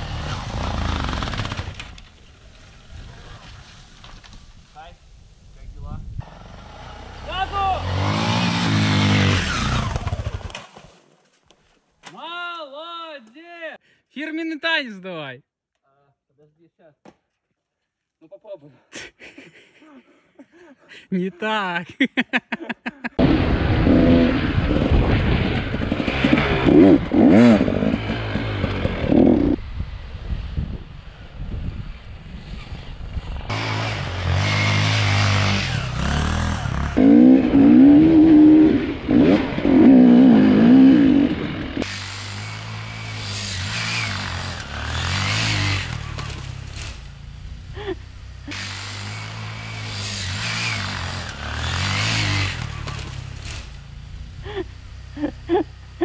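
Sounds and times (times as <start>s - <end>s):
motorcycle engine revving: 0.0s - 2.0s, 6.2s - 10.6s, 23.2s - 56.0s.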